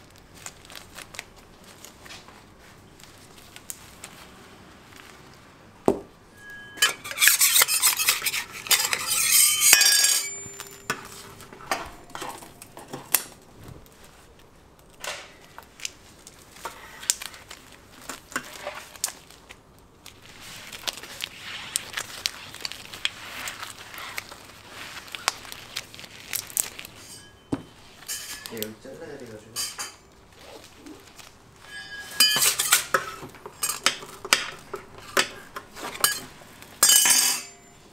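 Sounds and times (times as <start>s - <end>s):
metal tools scraping: 6.3s - 13.1s, 27.0s - 30.0s, 31.6s - 37.8s
metal tools tapping: 6.4s - 13.1s, 31.7s - 37.7s.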